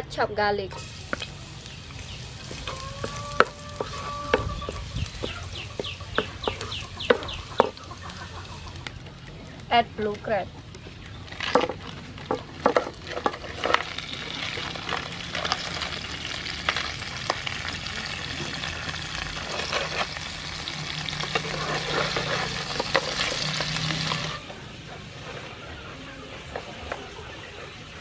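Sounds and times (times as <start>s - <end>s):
crab sizzling in hot oil: 0.8s - 9.8s, 11.3s - 24.5s.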